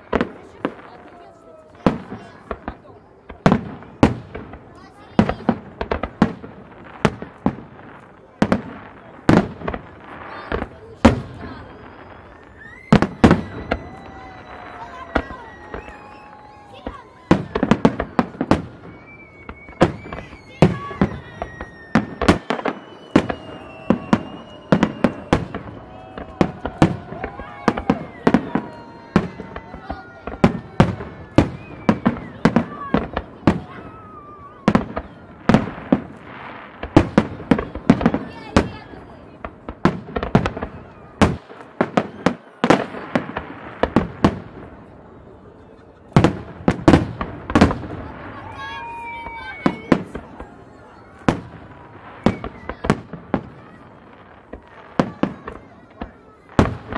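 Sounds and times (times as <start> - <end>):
firework bangs: 0.0 - 56.9
firework crackling: 0.0 - 56.9
high whistling tones: 18.7 - 26.0.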